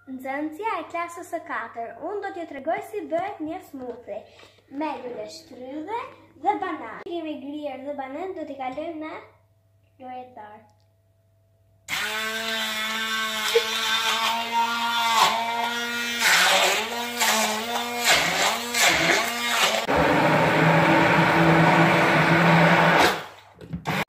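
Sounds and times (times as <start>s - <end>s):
stick blender motor whine: 11.9s - 24.0s.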